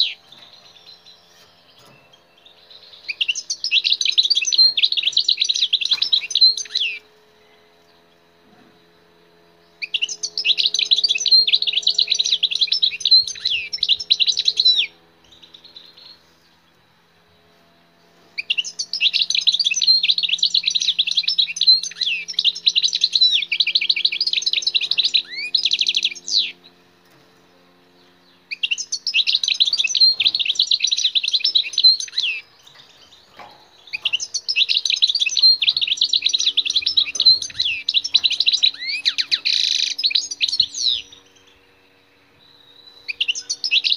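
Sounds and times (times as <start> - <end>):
goldfinch twittering song: 0.0 - 8.9, 9.5 - 43.9.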